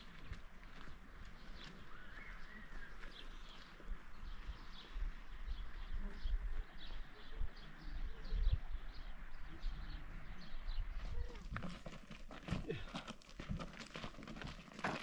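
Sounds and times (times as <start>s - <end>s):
small birds chirping: 1.1s - 11.6s.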